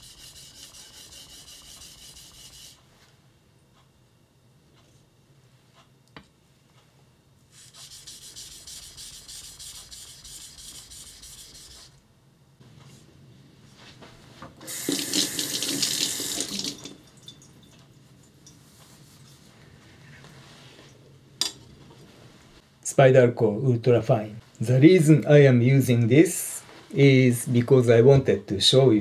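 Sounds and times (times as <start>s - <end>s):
tap running into sink: 14.6s - 17.0s.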